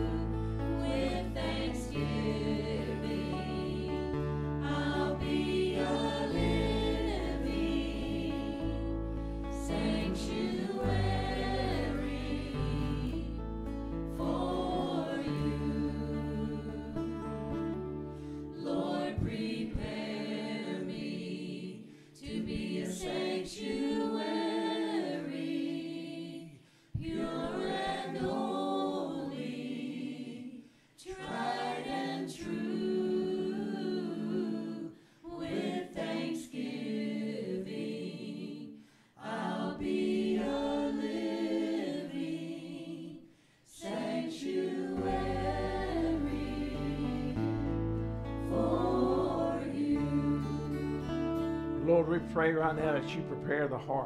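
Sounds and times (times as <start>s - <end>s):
men and women singing a chorus: 0.0s - 13.4s, 14.1s - 17.2s, 18.4s - 52.2s
bass line: 0.0s - 18.4s, 45.0s - 53.8s.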